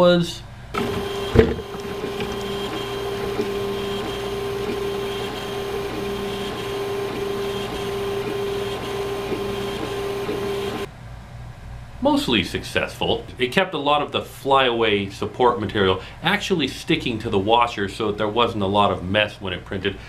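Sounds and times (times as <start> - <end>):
cooling fans whirring: 0.1 - 18.7
stepper motors whining: 0.7 - 10.9.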